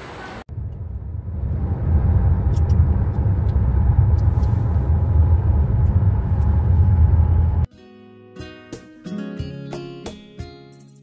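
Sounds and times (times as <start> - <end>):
car interior rumble: 0.5 - 7.7.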